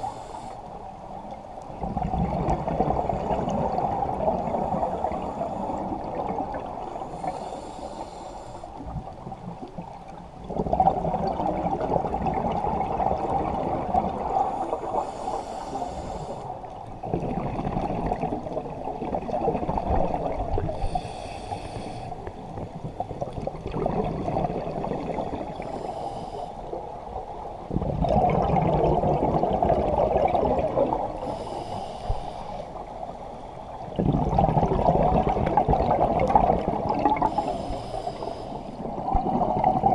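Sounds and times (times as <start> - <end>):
hissing regulator inhale: 0.0 - 0.8, 4.5 - 6.1, 7.0 - 8.8, 14.4 - 16.6, 20.7 - 22.3, 25.5 - 26.8, 31.2 - 33.8, 37.2 - 39.0
bubbling exhaled air: 10.4 - 16.4, 17.0 - 26.1, 27.7 - 32.9, 33.9 - 39.9.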